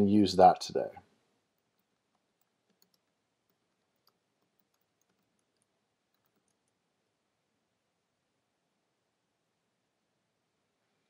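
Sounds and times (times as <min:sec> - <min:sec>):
keyboard typing: 0:01.5 - 0:06.8.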